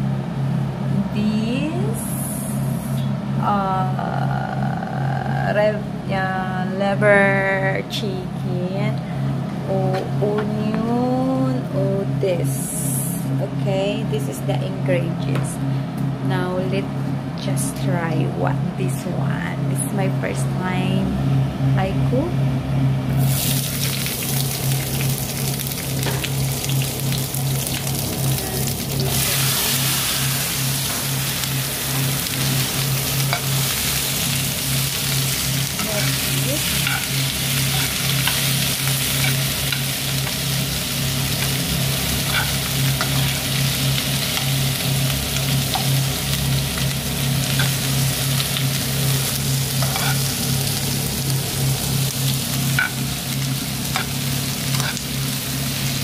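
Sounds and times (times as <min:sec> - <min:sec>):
steady low hum: 0:00.0 - 0:56.0
vegetables sizzling in oil: 0:23.1 - 0:56.0.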